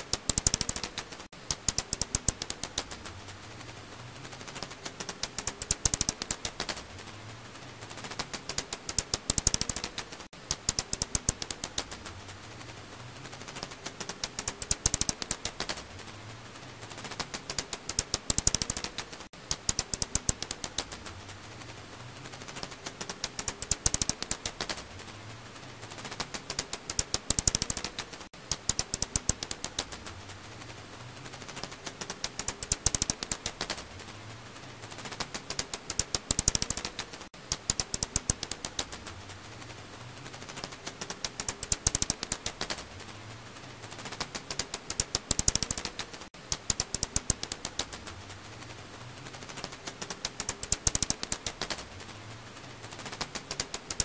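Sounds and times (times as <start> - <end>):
bat clicking calls: 0.0 - 3.1, 4.5 - 6.8, 8.0 - 12.1, 13.5 - 15.8, 16.9 - 21.1, 22.4 - 24.9, 26.0 - 30.1, 31.6 - 33.8, 35.0 - 39.1, 40.5 - 42.8, 43.9 - 48.1, 49.6 - 51.8.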